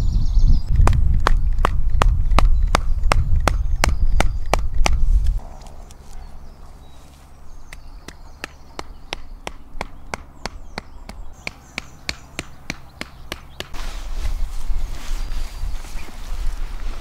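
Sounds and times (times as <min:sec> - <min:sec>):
faint birdsong: 0:00.0 - 0:17.0
wooden peg hammered into ground: 0:07.7 - 0:13.8.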